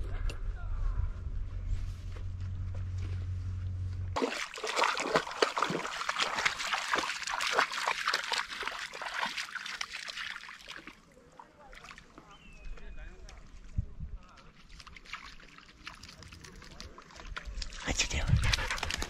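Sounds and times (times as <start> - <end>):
low steady hum: 0.0 - 6.0
water splashing and trickling: 4.2 - 19.0.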